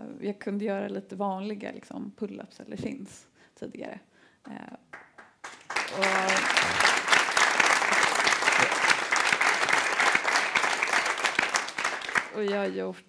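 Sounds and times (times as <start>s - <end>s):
audience applauding: 4.9s - 12.6s.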